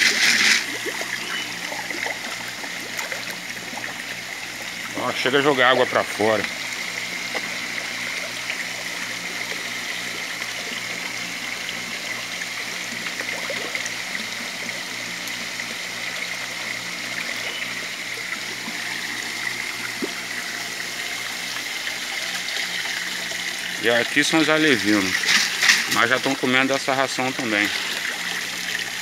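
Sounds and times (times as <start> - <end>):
water trickling into tank: 0.0 - 29.0.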